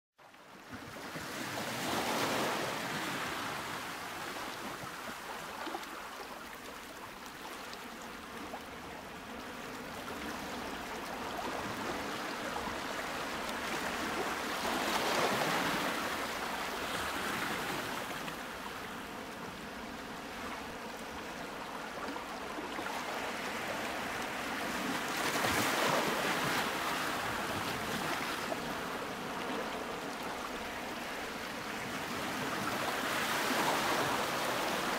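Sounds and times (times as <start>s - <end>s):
ocean waves washing: 8.2s - 34.9s.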